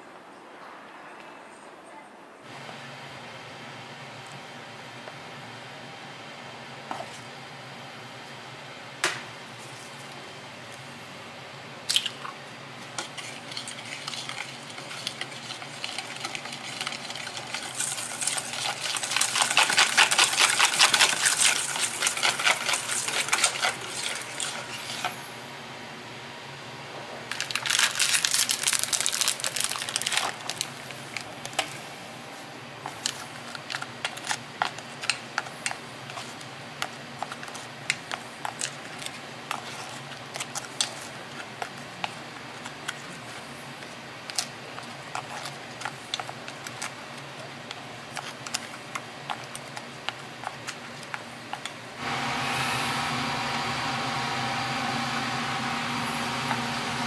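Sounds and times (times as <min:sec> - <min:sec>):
steady hiss and hum: 0:00.0 - 0:57.0
whisk beating in metal bowl: 0:12.8 - 0:25.2.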